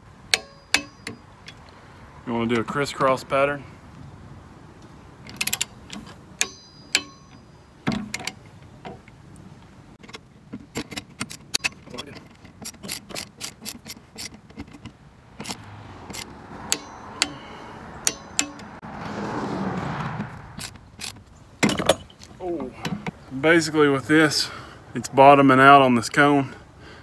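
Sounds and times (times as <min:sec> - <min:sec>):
torque wrench clicking: 0:12.6 - 0:14.6, 0:18.0 - 0:18.7.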